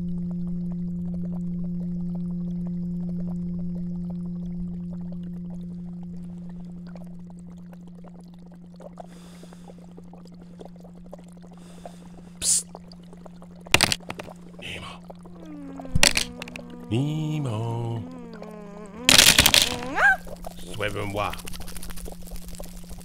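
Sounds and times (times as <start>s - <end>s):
steady low hum: 0.0s - 23.0s
water trickling and bubbling: 0.0s - 23.0s
pebbles dropping onto gravel: 13.8s - 14.3s, 16.0s - 16.6s, 19.1s - 20.0s.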